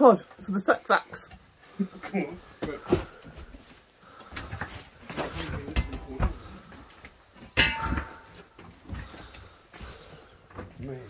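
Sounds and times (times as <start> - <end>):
shuffling footsteps among debris: 2.4 - 11.0
knocks and rustles: 4.3 - 11.0
scraping clatter with metallic ring: 7.6 - 8.4.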